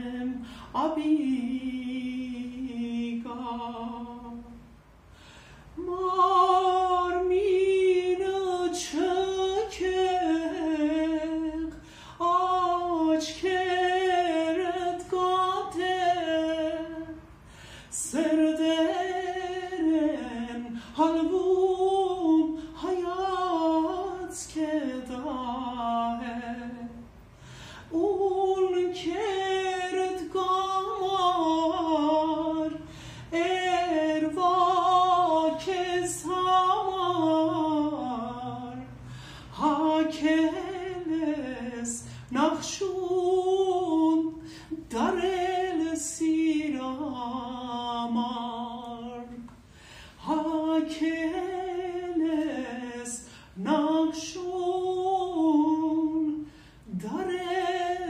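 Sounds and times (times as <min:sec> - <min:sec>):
woman singing unaccompanied: 0:00.0 - 0:04.7, 0:05.8 - 0:27.1, 0:27.8 - 0:49.5, 0:50.2 - 0:58.0
singer breathing: 0:00.4 - 0:00.8, 0:05.0 - 0:05.8, 0:11.7 - 0:12.2, 0:17.3 - 0:18.0, 0:27.2 - 0:28.0, 0:32.8 - 0:33.4, 0:38.9 - 0:39.6, 0:42.0 - 0:42.3, 0:44.4 - 0:44.8, 0:49.6 - 0:50.2, 0:53.2 - 0:53.6, 0:56.4 - 0:56.9.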